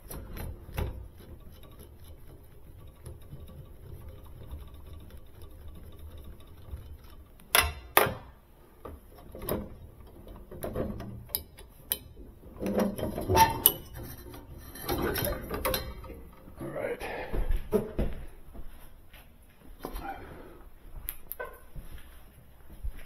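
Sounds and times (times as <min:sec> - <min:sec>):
metal parts scraping and rattling: 0:00.0 - 0:08.0, 0:09.0 - 0:16.8
sharp knocks of metal parts: 0:06.3 - 0:08.4, 0:09.2 - 0:16.6
clicks of hand tools: 0:07.4 - 0:08.2, 0:09.2 - 0:16.5.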